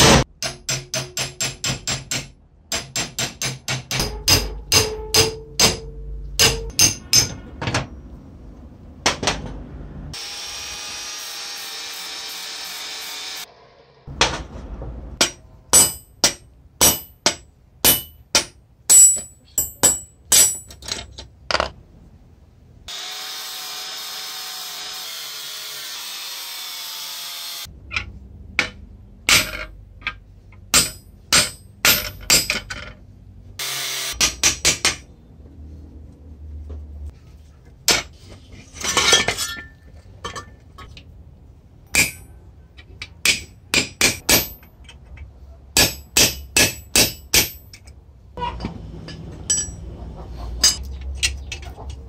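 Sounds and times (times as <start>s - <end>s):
hammer striking steel on anvil: 0.1s - 7.5s, 15.2s - 20.8s, 28.6s - 32.8s, 41.9s - 42.4s, 43.0s - 44.7s, 45.8s - 47.9s, 49.1s - 49.8s
power tool running: 10.2s - 14.0s, 22.9s - 27.7s, 33.6s - 34.2s.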